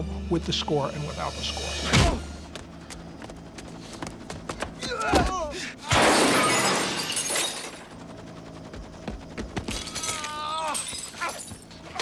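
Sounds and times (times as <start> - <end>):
glass skylight shattering: 5.9 - 7.8.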